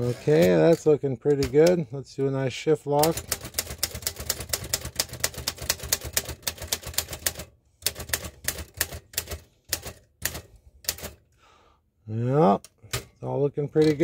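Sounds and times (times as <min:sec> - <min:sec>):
typewriter keys striking: 0:03.0 - 0:11.2.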